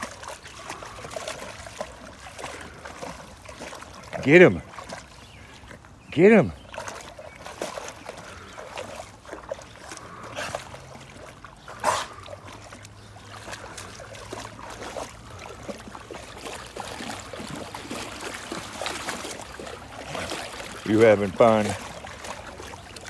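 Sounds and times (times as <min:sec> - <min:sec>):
dog sloshing in water: 0:00.0 - 0:23.0
loud splash: 0:08.8 - 0:22.8.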